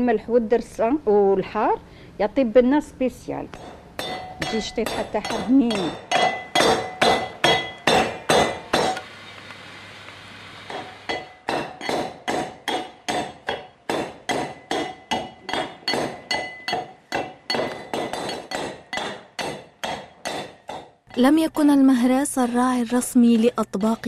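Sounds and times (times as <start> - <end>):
brass pestle striking mortar: 3.7 - 9.0, 10.7 - 21.3.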